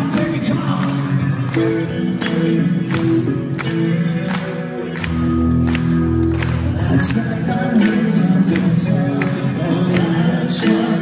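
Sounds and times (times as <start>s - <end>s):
electric guitar chords: 0.0s - 11.0s.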